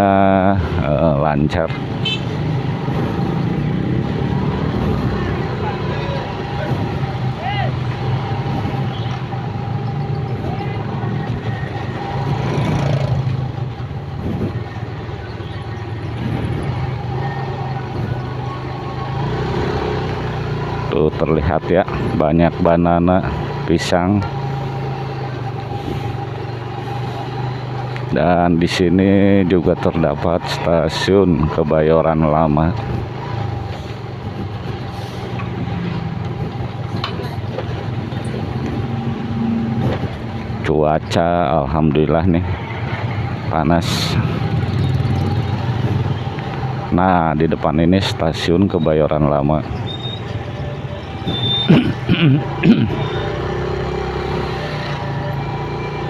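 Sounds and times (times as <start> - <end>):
motorcycle engine humming: 0.0 - 56.0
road noise: 0.0 - 56.0
street traffic noise: 0.0 - 56.0
motorcycle engine running: 43.0 - 46.9.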